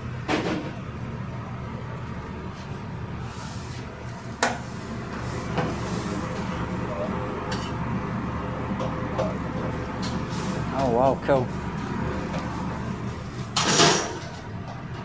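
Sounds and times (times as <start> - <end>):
low machinery hum: 0.0 - 15.0
utensils and dishes clinking: 13.6 - 14.4.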